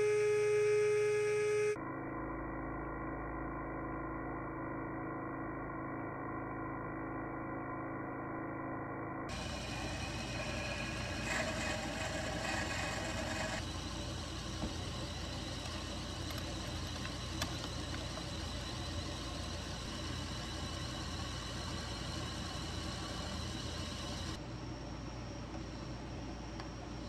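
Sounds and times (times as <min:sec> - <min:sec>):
drill bit cutting: 0:09.3 - 0:24.4
lathe motor humming: 0:09.3 - 0:24.4.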